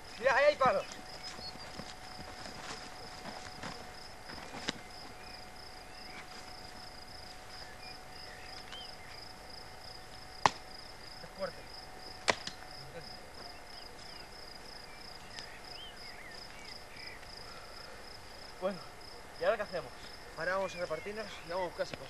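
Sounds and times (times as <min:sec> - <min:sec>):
crickets chirping: 0:00.0 - 0:22.0
dry branches snapping: 0:10.1 - 0:10.7, 0:12.2 - 0:12.7.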